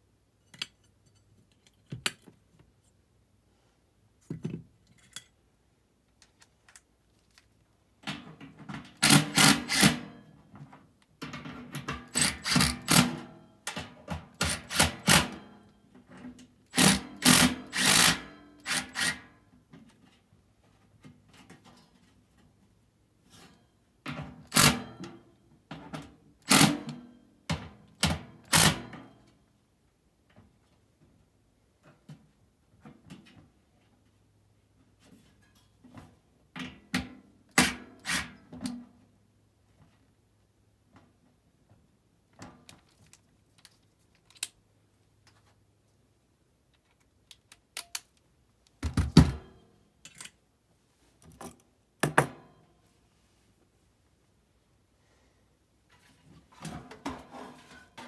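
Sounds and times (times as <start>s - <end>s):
cordless drill bursts: 9.0s - 10.0s, 12.2s - 13.0s, 16.7s - 19.1s.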